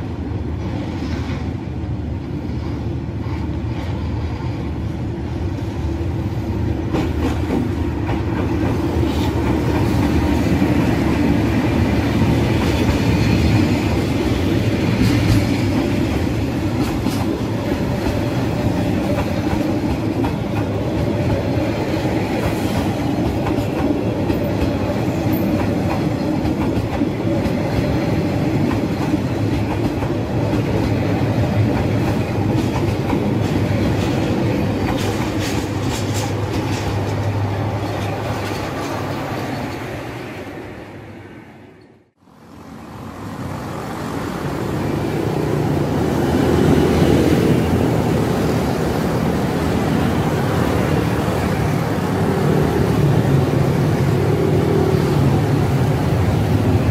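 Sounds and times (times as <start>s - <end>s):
diesel locomotive passing: 0.0s - 56.9s
train wheels clicking on rail joints: 6.7s - 40.1s.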